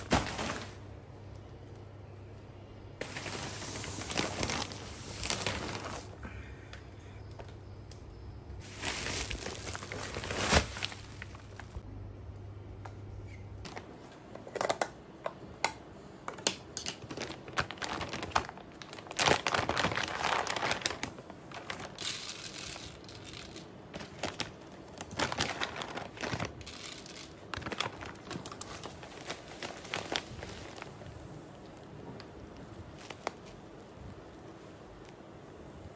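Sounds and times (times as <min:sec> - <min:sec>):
plastic and paper bags crinkling: 0:00.0 - 0:00.8, 0:03.0 - 0:06.4, 0:08.6 - 0:11.8, 0:16.4 - 0:34.2
pellets clicking into a tank: 0:15.6 - 0:30.9.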